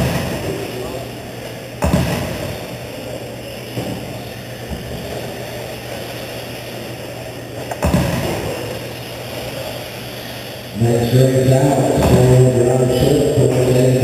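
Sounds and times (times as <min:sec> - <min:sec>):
sharp thumps: 0:01.8 - 0:02.8, 0:07.6 - 0:08.8.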